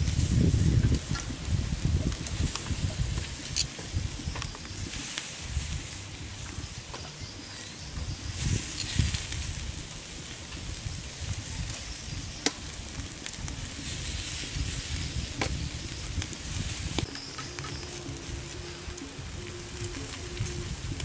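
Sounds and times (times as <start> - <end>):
fat popping on coals: 0.0 - 21.0
fish sizzling on a grill: 0.0 - 21.0
metal tongs clattering on grate: 0.1 - 5.7, 8.4 - 9.6.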